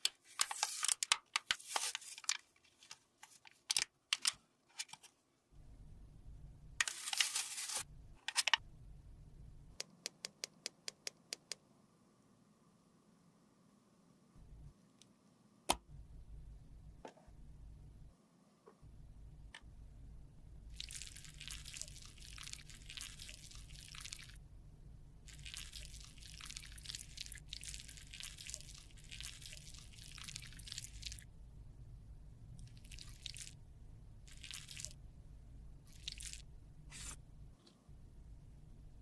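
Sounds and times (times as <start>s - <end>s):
sticky wet squishing: 25.3s - 31.2s, 32.6s - 33.6s, 34.3s - 35.0s.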